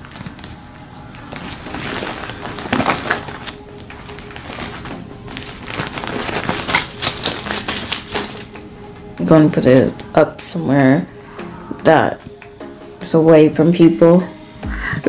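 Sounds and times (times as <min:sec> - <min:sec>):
packaging rustling: 0:00.0 - 0:08.6.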